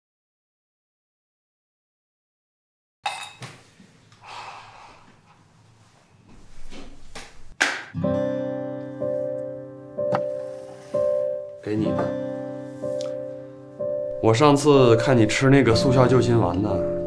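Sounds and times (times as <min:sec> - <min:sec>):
acoustic guitar plucked notes: 0:08.0 - 0:15.2.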